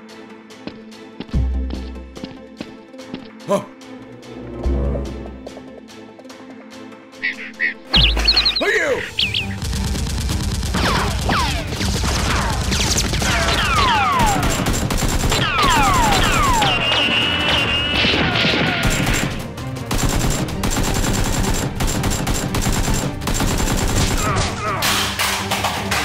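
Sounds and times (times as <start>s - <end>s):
background music: 0.0s - 26.0s
automatic gunfire: 9.6s - 24.5s
falling whistles of ricochets: 15.4s - 19.2s.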